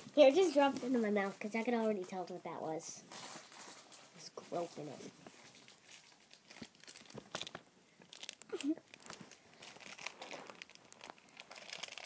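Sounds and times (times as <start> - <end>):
plastic wrapper crinkling: 3.1 - 12.0.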